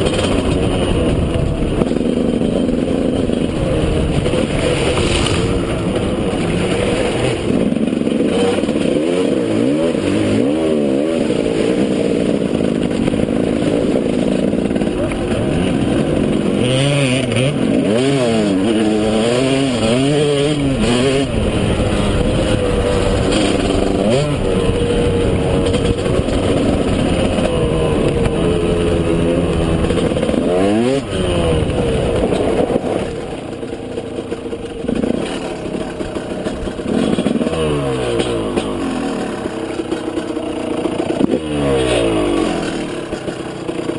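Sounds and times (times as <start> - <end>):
two-stroke motorbike engine revving: 0.0 - 43.9.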